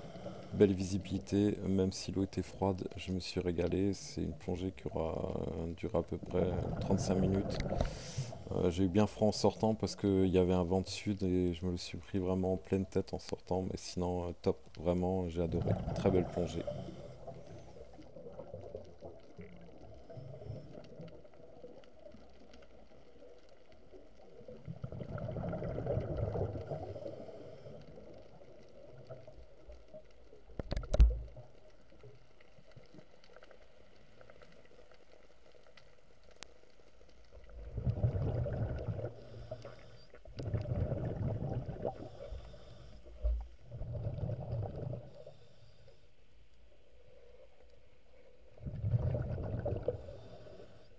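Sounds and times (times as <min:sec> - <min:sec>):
underwater breath bubbles: 0:06.4 - 0:08.6, 0:15.6 - 0:18.8, 0:24.6 - 0:28.2, 0:37.5 - 0:45.8, 0:48.5 - 0:50.9.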